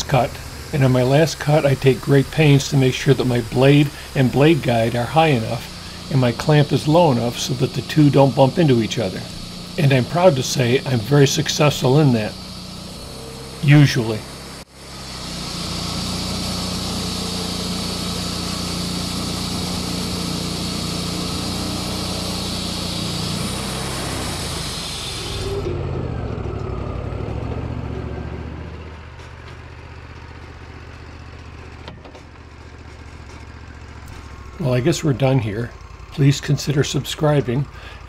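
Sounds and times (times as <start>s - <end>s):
band saw blade hissing through wood: 0.0s - 25.7s, 37.6s - 38.0s
sawmill engine running: 0.0s - 38.0s.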